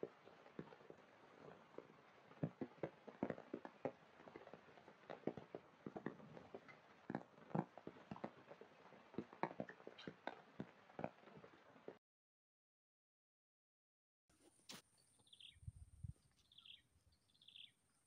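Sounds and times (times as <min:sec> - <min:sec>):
raindrops tapping and dripping: 0:00.0 - 0:12.0.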